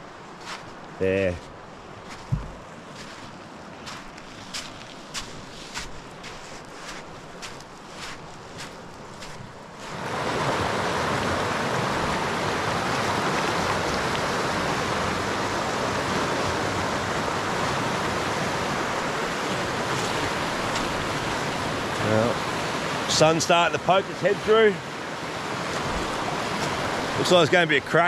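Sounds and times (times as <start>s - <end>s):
river rushing: 0.0s - 28.0s
footsteps: 0.4s - 0.8s, 1.4s - 10.0s.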